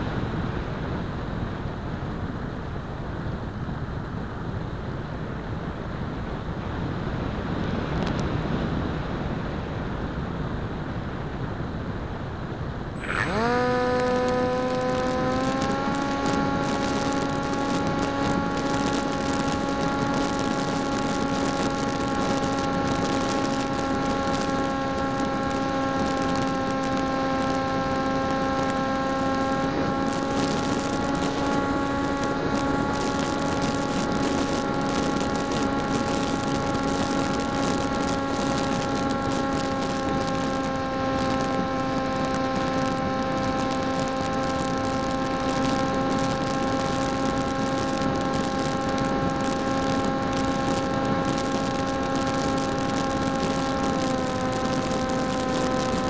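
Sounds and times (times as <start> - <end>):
electric motor and propeller whine: 12.6 - 56.0.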